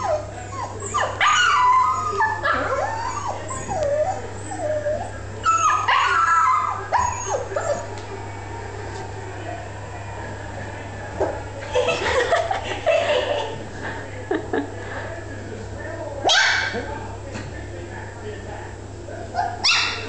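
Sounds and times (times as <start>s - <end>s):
puppy whining and yipping: 0.0s - 7.9s.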